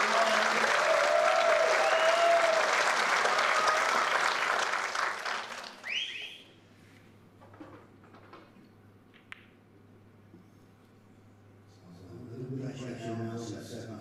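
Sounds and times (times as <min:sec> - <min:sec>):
audience applauding: 0:00.0 - 0:06.4
whistles: 0:01.8 - 0:02.5, 0:05.8 - 0:06.6.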